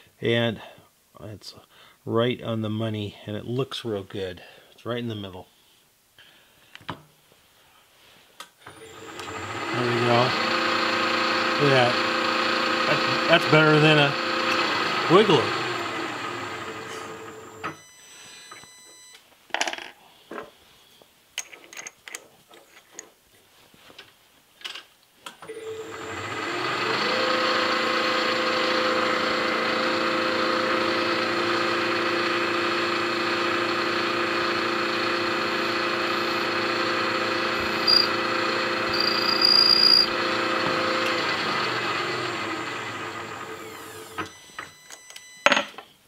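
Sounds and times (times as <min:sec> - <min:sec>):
spindle motor humming and whining: 0:08.8 - 0:17.9, 0:25.5 - 0:45.0
drill squealing cutting metal: 0:08.9 - 0:17.7, 0:35.5 - 0:41.4
clicks and knocks of tool fitting: 0:21.4 - 0:23.1.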